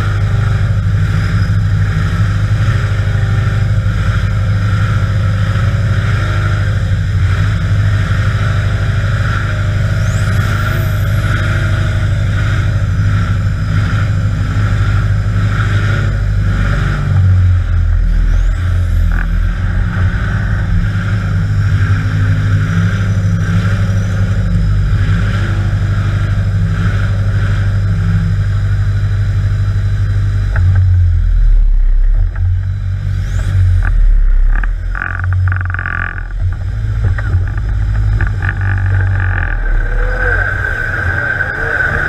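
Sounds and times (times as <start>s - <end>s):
buggy engine revving under load: 32.3s - 42.0s
chassis knocks and clunks: 33.7s - 39.8s.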